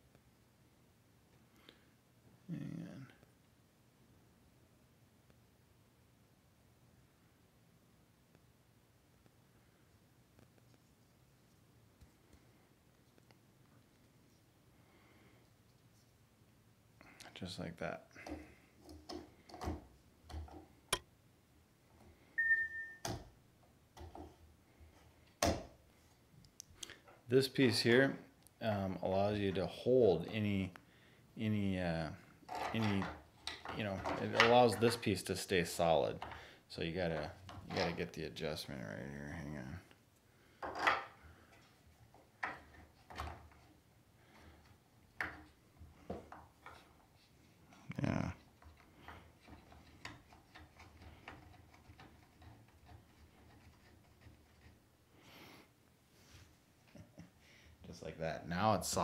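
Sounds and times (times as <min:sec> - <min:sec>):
plastic scraping and rubbing: 0:48.4 - 0:54.8.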